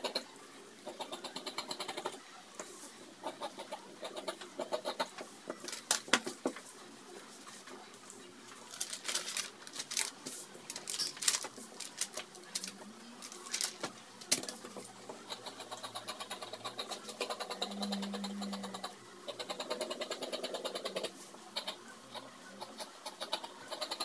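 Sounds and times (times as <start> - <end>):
fabric and cardboard rustling: 8.6 - 14.7.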